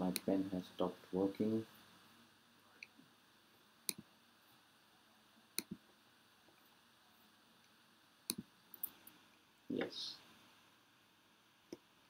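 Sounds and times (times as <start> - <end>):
computer mouse clicking: 3.9 - 4.1, 5.6 - 5.8, 8.3 - 9.0.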